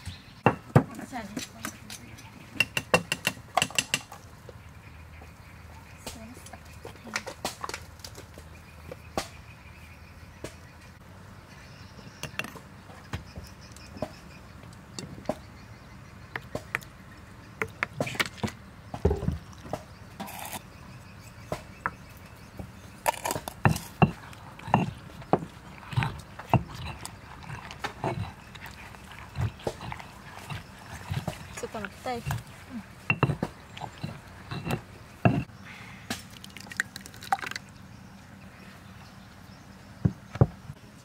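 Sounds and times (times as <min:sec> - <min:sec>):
stone pestle pounding in mortar: 0:23.1 - 0:32.5, 0:33.1 - 0:35.5.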